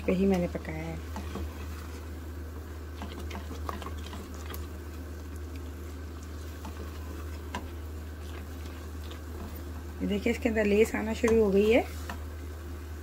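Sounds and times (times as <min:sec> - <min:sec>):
spatula stirring thick stew: 0:00.1 - 0:12.6
small pops of simmering: 0:00.3 - 0:12.4
soft squelching: 0:02.8 - 0:12.3.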